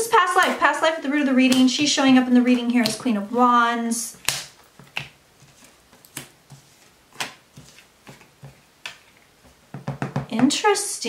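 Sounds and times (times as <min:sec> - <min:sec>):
cards snapping and tapping: 0:04.2 - 0:06.4, 0:07.2 - 0:09.0.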